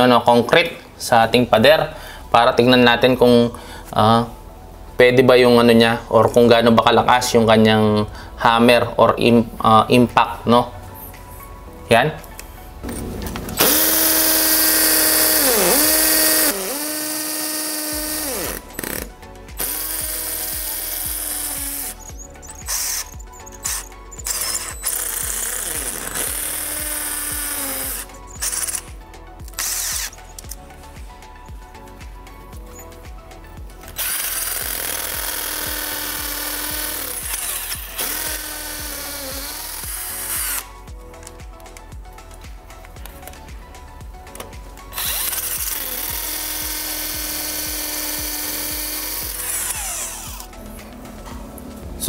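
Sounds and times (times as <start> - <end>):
background music with steady beat: 0.0 - 52.0
hammer drill drilling into concrete: 13.6 - 30.2, 33.9 - 40.7, 45.0 - 50.5.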